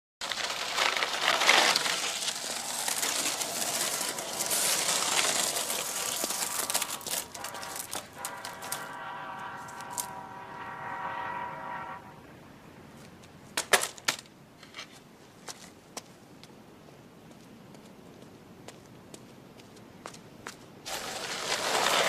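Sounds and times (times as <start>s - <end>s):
skateboard wheels rolling on wet asphalt: 0.2s - 12.1s, 20.8s - 22.0s
sharp skateboard clicks: 0.5s - 8.9s.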